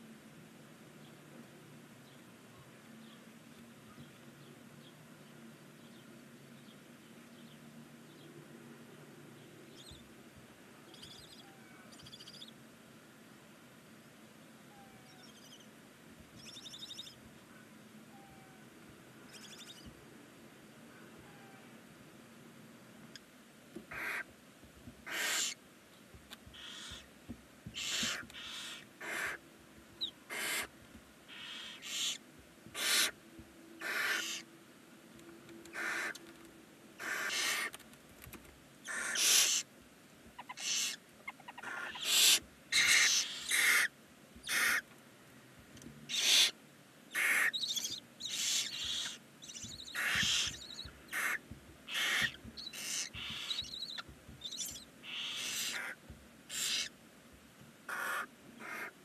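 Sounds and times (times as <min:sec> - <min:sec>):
owl chicks hissing: 0:23.9 - 0:24.3, 0:25.0 - 0:25.6, 0:26.5 - 0:27.1, 0:27.7 - 0:29.4, 0:30.0 - 0:30.7, 0:31.3 - 0:33.2, 0:33.8 - 0:34.5, 0:35.7 - 0:36.2, 0:37.0 - 0:37.8, 0:38.8 - 0:39.7, 0:40.4 - 0:44.8, 0:46.1 - 0:57.0, 0:57.9 - 0:58.9.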